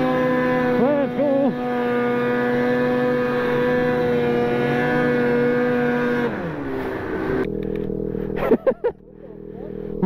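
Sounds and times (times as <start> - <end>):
snowmobile engine running: 0.0 - 10.0.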